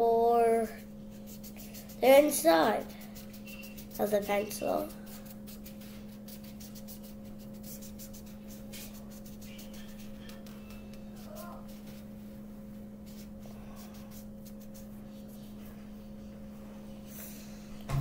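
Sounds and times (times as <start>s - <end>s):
steady low hum: 0.0s - 18.0s
pencil scratching on paper: 0.6s - 12.1s, 13.0s - 15.6s.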